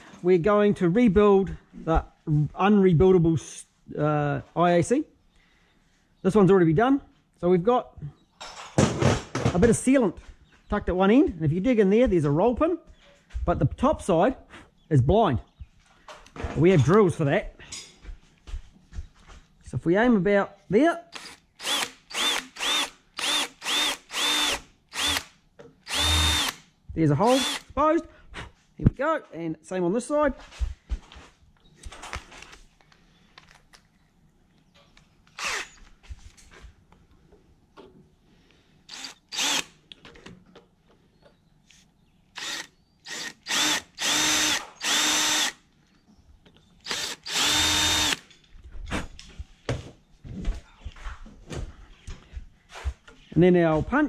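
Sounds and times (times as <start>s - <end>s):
drill motor whine: 21.2s - 25.2s, 25.9s - 26.6s, 27.3s - 27.6s, 35.4s - 35.8s, 38.9s - 39.6s, 42.4s - 45.5s, 46.8s - 48.2s.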